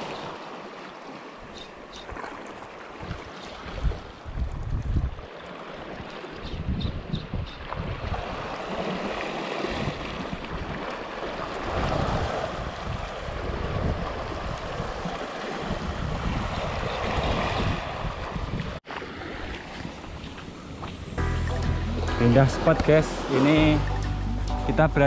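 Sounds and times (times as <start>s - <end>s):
sea surf: 0.0s - 6.8s, 7.7s - 25.0s
wind buffeting microphone: 3.0s - 5.3s, 6.0s - 8.8s, 11.6s - 21.2s.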